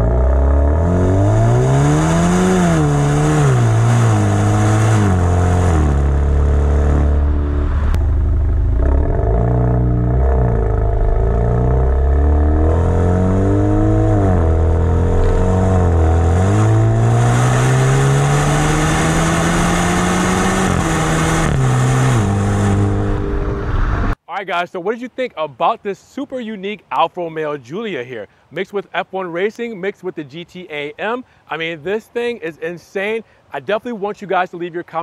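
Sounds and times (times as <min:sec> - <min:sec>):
car exhaust while driving: 0:00.0 - 0:24.2.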